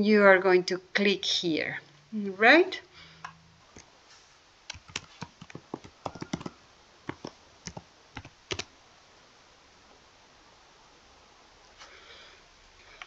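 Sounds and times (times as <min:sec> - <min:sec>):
keyboard typing: 0:04.7 - 0:08.7.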